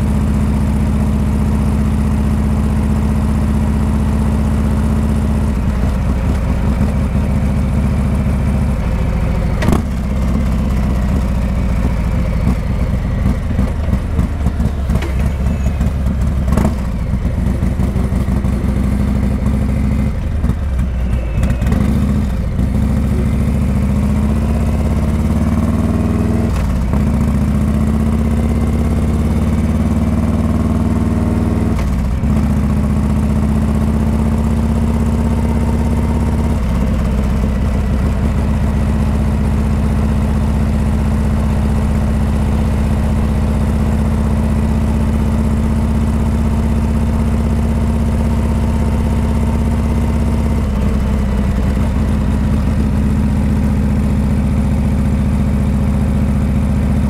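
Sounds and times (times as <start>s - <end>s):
motorcycle engine running loud: 0.0s - 57.0s
motorcycle gear shifts: 9.6s - 11.2s, 13.3s - 17.2s.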